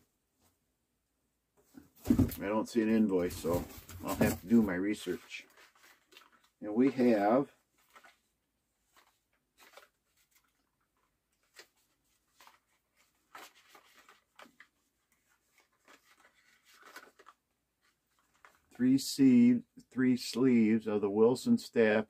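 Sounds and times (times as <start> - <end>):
packaging rustling and clicking: 15.5 - 17.4.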